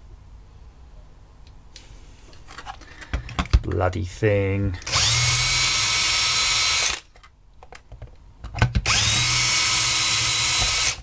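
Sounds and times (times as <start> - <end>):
cordless drill boring into plastic: 4.8 - 7.0, 8.8 - 11.0.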